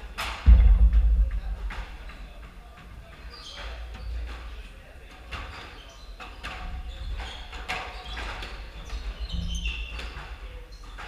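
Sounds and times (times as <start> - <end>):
sneakers squeaking on court: 5.4 - 11.0.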